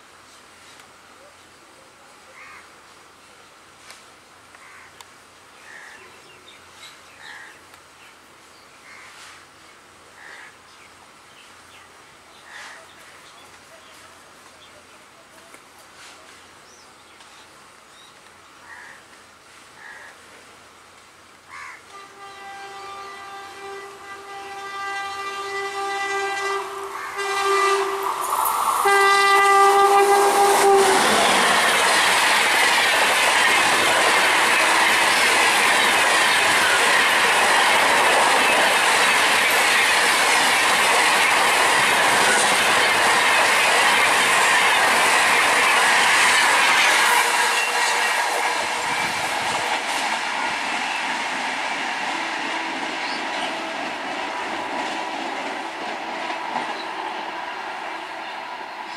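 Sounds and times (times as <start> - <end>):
locomotive horn blasts: 21.9 - 28.2, 28.8 - 31.5, 47.0 - 49.2
train wheels rushing past: 23.1 - 58.9.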